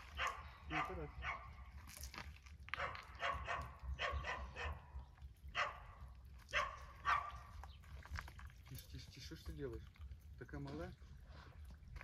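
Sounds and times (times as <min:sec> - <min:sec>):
dog barking: 0:00.1 - 0:01.6, 0:02.8 - 0:04.9, 0:05.5 - 0:07.5.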